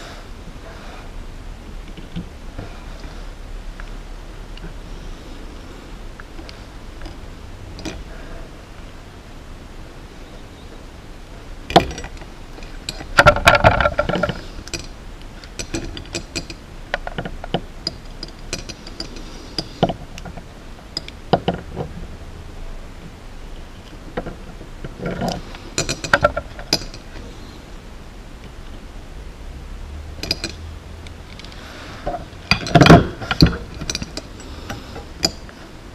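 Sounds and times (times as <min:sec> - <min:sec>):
metal tools clinking on workbench: 0:11.8 - 0:16.6, 0:17.4 - 0:19.8, 0:25.2 - 0:27.1, 0:30.2 - 0:30.7, 0:32.5 - 0:35.5.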